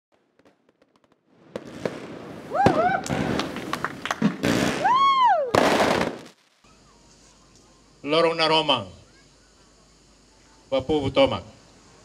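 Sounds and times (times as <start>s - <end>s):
fireworks bangs and crackling: 0.1s - 6.6s
rising-and-falling cries: 4.8s - 5.6s.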